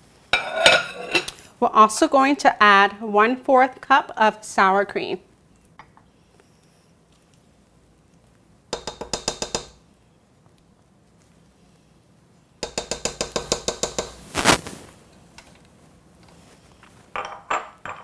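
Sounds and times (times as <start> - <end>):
spatula tapping metal bowl: 8.7 - 9.8, 12.6 - 14.2
knock on metal bowl: 8.8 - 9.7.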